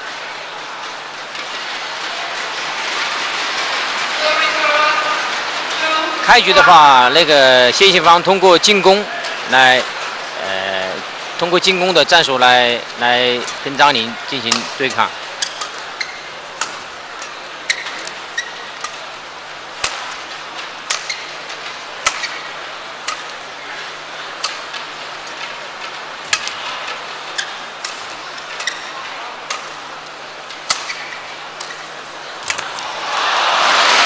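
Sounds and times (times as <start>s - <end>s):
rackets striking shuttlecock: 14.5s - 19.1s, 19.8s - 23.5s, 26.2s - 26.7s, 27.4s - 32.8s.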